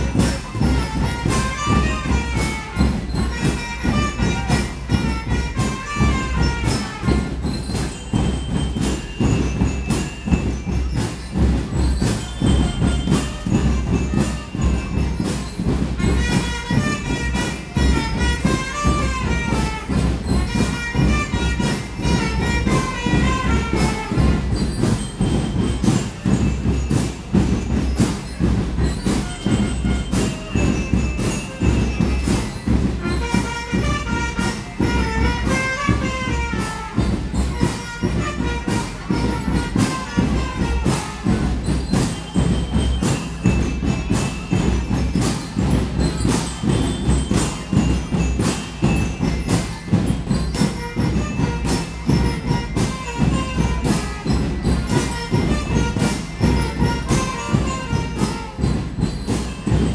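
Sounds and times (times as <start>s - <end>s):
trumpets playing melody: 0.0s - 7.5s, 12.6s - 24.9s, 33.0s - 41.6s, 50.6s - 59.0s
bass drums: 0.0s - 59.9s
snare drums: 0.0s - 59.9s.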